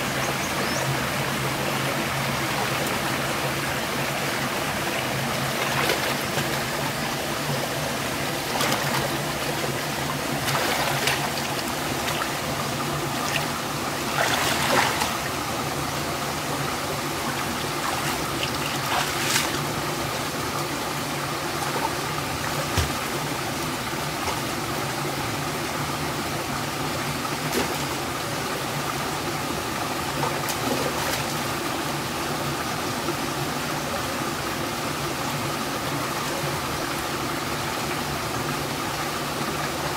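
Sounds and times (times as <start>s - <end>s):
stream trickling over stones: 0.0s - 39.9s
water splashing: 3.8s - 15.7s, 16.8s - 20.0s, 21.8s - 23.2s.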